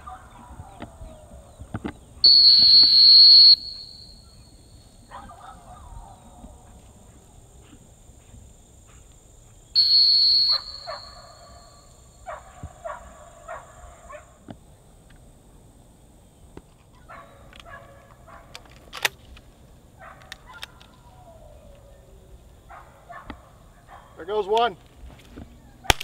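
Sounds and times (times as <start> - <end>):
dog whistle blast: 2.2 - 4.5, 9.8 - 11.9.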